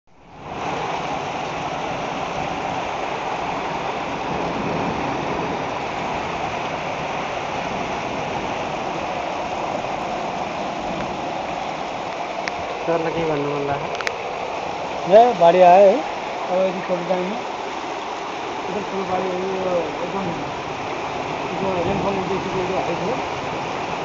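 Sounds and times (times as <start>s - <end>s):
water rushing and splashing: 0.1s - 24.0s.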